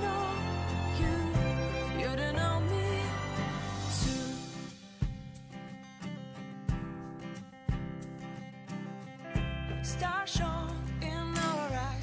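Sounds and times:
pop song chord with bass: 0:00.0 - 0:04.8.

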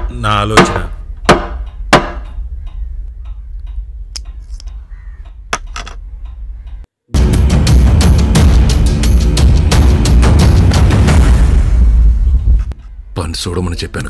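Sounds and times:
small objects tapping on table: 0:05.6 - 0:06.0.

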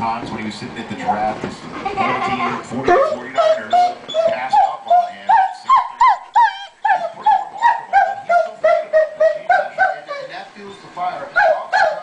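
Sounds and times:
dog whining: 0:02.4 - 0:10.4.

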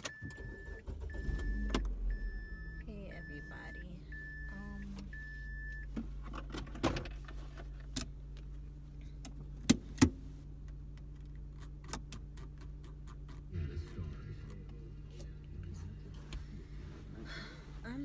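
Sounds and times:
car warning chime beeping: 0:00.0 - 0:06.0.

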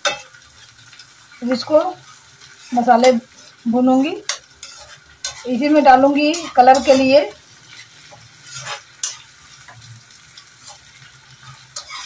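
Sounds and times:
faint sizzle: 0:00.0 - 0:12.0
metal spatula scraping iron pan: 0:01.5 - 0:03.6, 0:04.2 - 0:09.7, 0:10.6 - 0:12.0.

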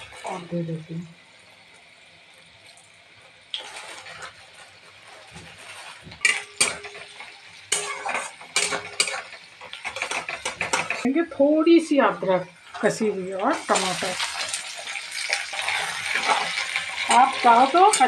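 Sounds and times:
onions sizzling in oil: 0:00.0 - 0:18.0
metal spatula scraping a metal pan: 0:03.6 - 0:11.0, 0:13.7 - 0:18.0.

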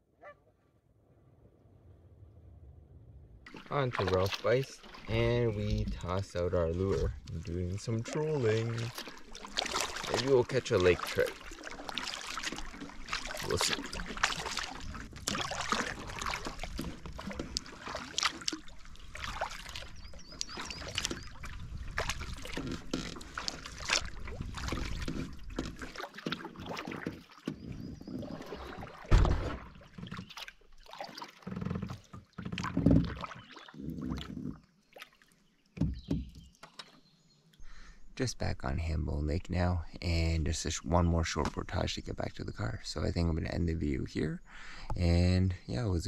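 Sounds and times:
low rumble: 0:01.1 - 0:03.5
paddle strokes splashing water: 0:03.4 - 0:37.0
loud thump: 0:29.1 - 0:29.7.

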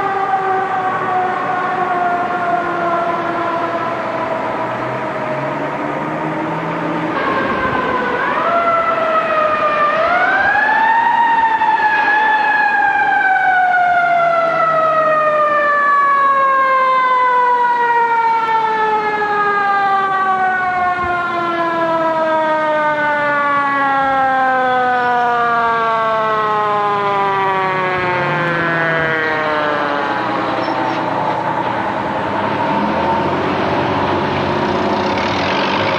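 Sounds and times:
fire truck siren wailing: 0:00.0 - 0:35.9.

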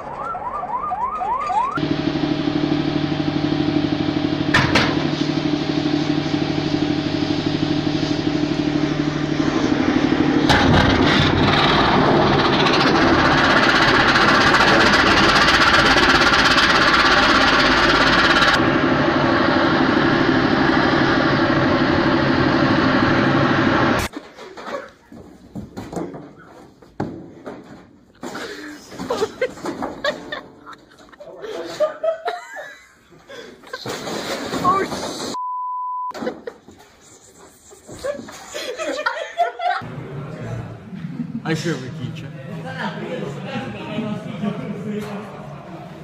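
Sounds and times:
heavy vehicle engine running: 0:01.8 - 0:24.1.

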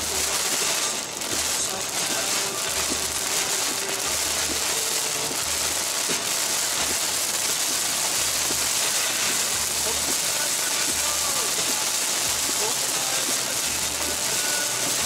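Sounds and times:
heavy rain on car windshield: 0:00.0 - 0:15.0.

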